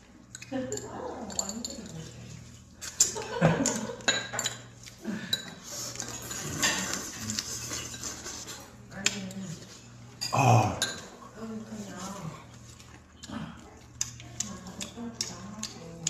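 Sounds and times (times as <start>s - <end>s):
utensils clinking on plates: 0.3s - 12.0s.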